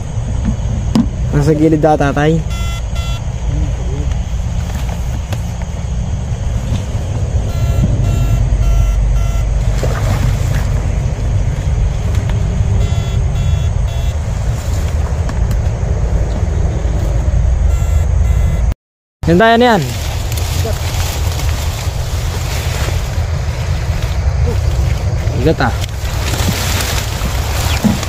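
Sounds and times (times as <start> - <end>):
short identical beeps: 2.4 - 3.3, 7.4 - 9.6, 12.7 - 14.2, 17.6 - 18.7
wading through marsh water: 8.7 - 12.1, 19.9 - 28.0.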